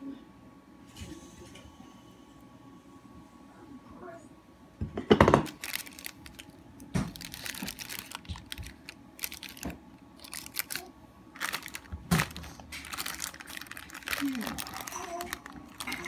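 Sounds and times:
parchment paper crinkling: 5.5 - 16.0.

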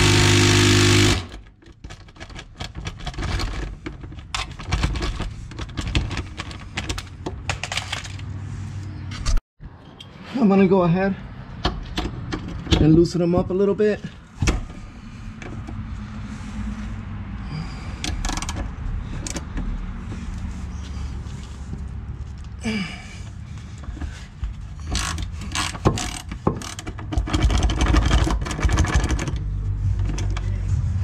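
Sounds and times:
ratchet wrench clicking: 24.8 - 29.3.

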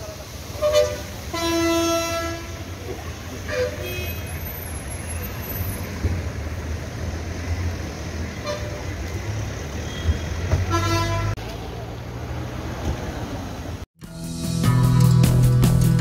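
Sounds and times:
low rumble of traffic: 0.0 - 13.9
vehicle horn honking: 0.6 - 2.6, 3.5 - 4.4, 9.8 - 11.4.

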